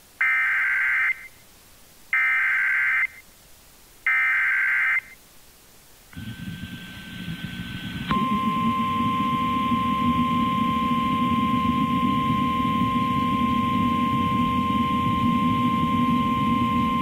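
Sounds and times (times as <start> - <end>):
steady buzzy noise: 5.6 - 17.0.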